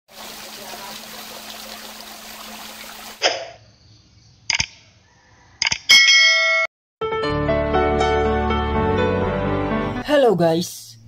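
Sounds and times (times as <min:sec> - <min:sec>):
waterfall splashing into pool: 0:00.1 - 0:03.2.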